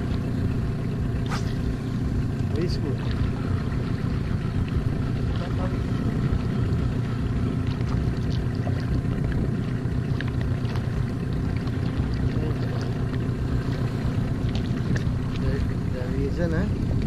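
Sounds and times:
outboard motor running: 0.0 - 17.0
water splashing against hull: 0.0 - 17.0
wind on microphone: 4.8 - 9.8.

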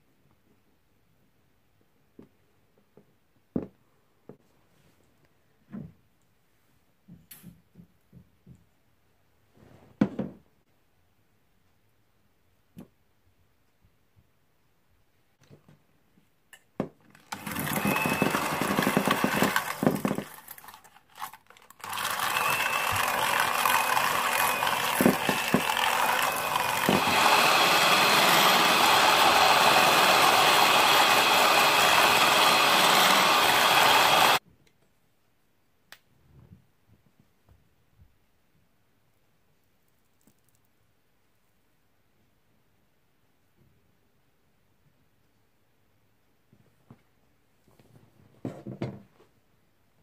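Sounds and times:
electric hand mixer beating: 17.1 - 34.4.

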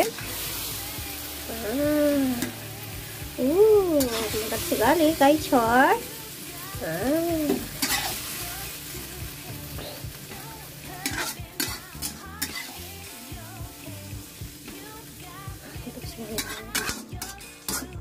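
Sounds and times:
food sizzling in a wok: 0.0 - 18.0
metal spatula scraping a pan: 4.0 - 4.9, 7.8 - 8.3, 11.0 - 12.8, 16.3 - 18.0.

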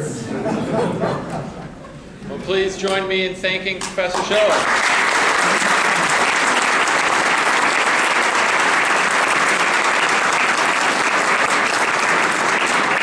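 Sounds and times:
audience applauding: 4.1 - 13.0.

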